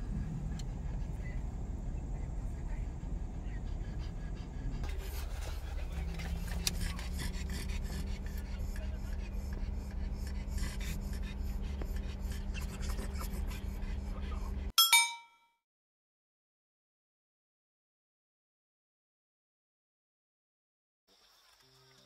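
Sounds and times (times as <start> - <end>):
car hum: 0.0 - 10.2
dogs panting: 0.0 - 14.7.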